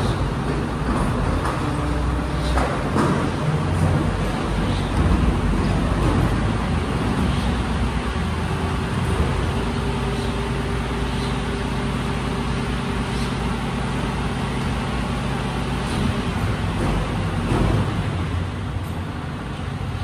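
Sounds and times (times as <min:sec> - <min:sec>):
diesel truck engine idling: 0:00.0 - 0:20.0.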